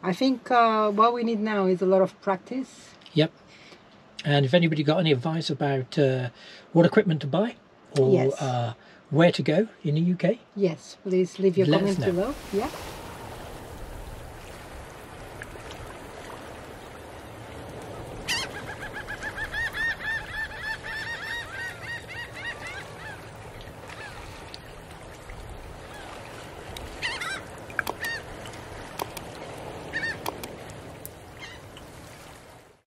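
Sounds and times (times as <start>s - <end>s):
steady background hiss: 0.0s - 25.7s
birds honking calls: 18.2s - 24.2s, 27.0s - 28.4s, 29.0s - 30.6s
sharp clicks: 27.8s - 28.2s, 28.9s - 29.4s, 30.2s - 30.6s.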